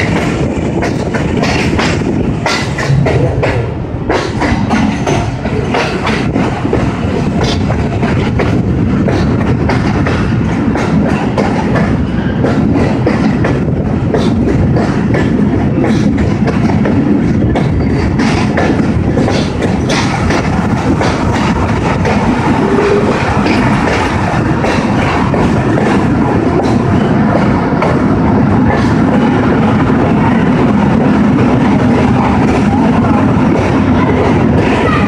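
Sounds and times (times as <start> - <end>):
clickety-clack over rail joints: 0.0 - 35.0
train wheels rumbling: 0.0 - 35.0.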